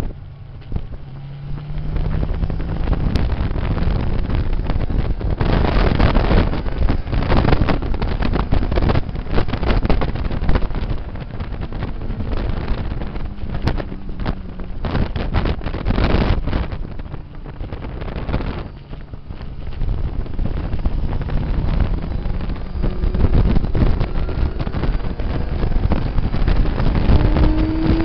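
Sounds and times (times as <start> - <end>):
motorcycle engine running: 0.0 - 28.0
wind buffeting microphone: 0.0 - 28.0.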